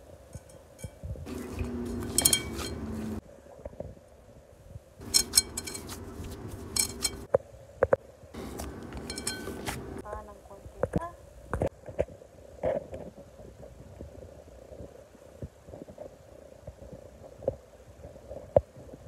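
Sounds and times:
fingers clinking against glass: 0.3s - 3.2s, 5.0s - 7.3s, 9.0s - 9.9s
low hum: 0.4s - 3.2s, 5.0s - 7.3s, 8.4s - 10.8s
hands kneading dough: 5.0s - 7.3s, 8.4s - 10.0s.

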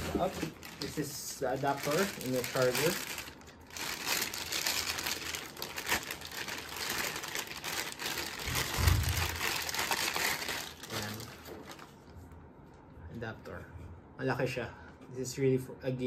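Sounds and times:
plastic wrapping crinkling: 0.0s - 12.2s.

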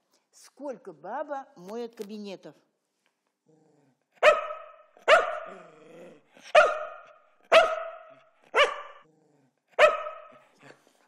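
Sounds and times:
dog barking: 4.2s - 5.7s, 6.4s - 9.0s, 9.8s - 10.5s.

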